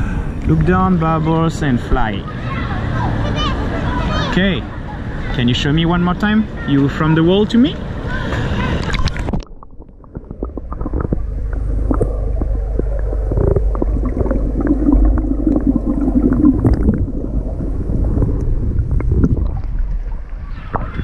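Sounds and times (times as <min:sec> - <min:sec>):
steady low rumble: 0:07.8 - 0:21.0
water sloshing and splashing: 0:07.8 - 0:21.0.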